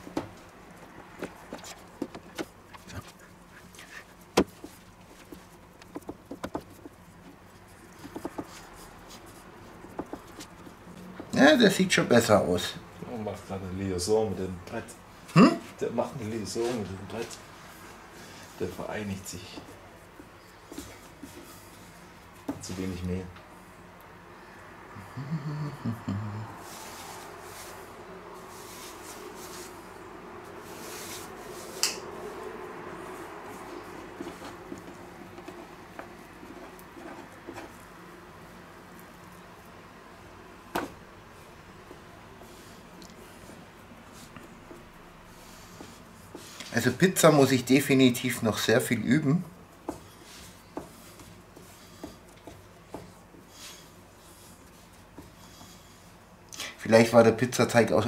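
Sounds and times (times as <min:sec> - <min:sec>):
steady low hum: 0:00.0 - 0:56.6
hands patting pizza dough: 0:04.2 - 0:10.9, 0:49.7 - 0:53.7
hands pressing dough on board: 0:04.3 - 0:08.7, 0:09.8 - 0:10.7.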